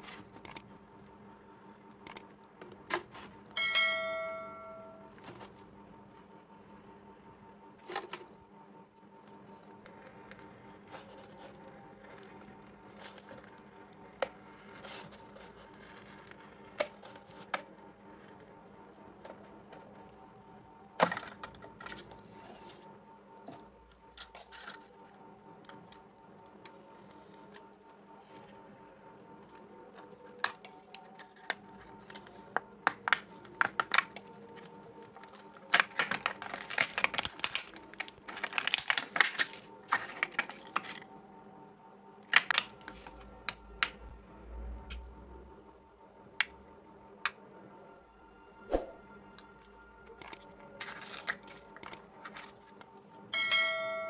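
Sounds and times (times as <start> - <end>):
notification bell chime: 3.6 - 5.1
plastic bottle crackling: 35.0 - 41.0.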